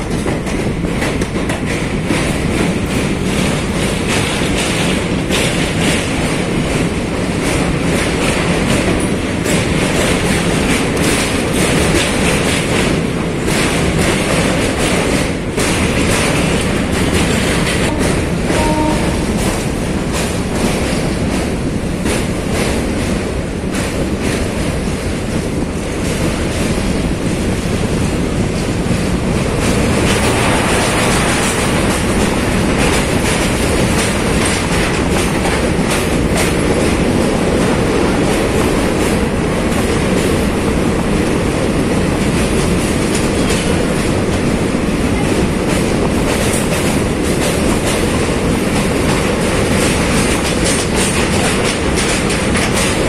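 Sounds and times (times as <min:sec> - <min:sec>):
clickety-clack over rail joints: 0:00.0 - 0:53.0
train wheels rumbling on rails: 0:00.0 - 0:53.0.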